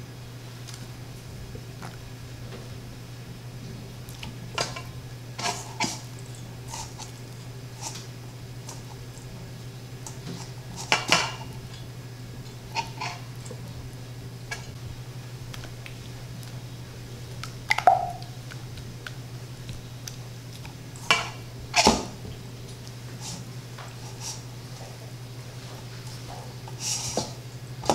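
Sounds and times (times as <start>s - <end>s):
steady low hum: 0.0s - 27.9s
knocks on steel bowls: 17.7s - 18.2s.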